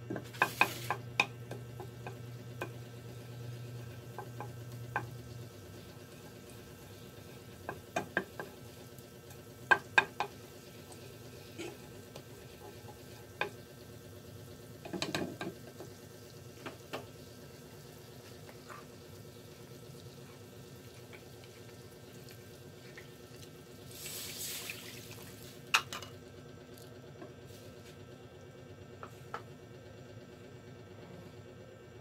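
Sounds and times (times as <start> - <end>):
wooden spatula taps and scrapes: 0.1 - 2.8, 9.7 - 10.4
butter sizzling in a pan: 0.1 - 25.9
liquid poured into hot pan hissing: 0.3 - 1.0, 19.5 - 25.7.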